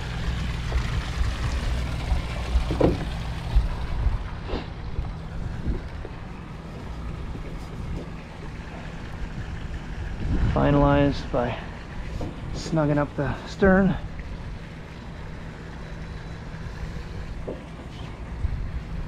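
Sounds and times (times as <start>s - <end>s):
wind buffeting microphone: 0.0s - 12.6s, 18.2s - 19.0s.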